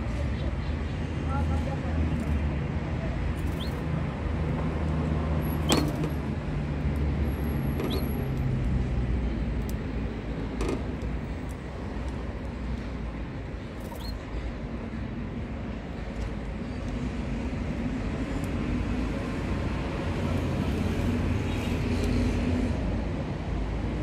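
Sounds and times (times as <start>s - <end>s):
canaries chirping: 3.4s - 3.8s, 7.9s - 8.2s, 13.8s - 14.2s.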